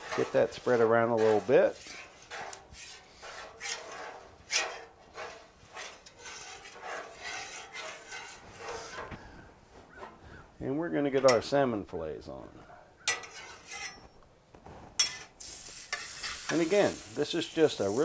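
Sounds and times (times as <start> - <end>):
metal spatula scraping griddle: 0.0 - 9.2, 13.1 - 14.2, 15.0 - 18.0.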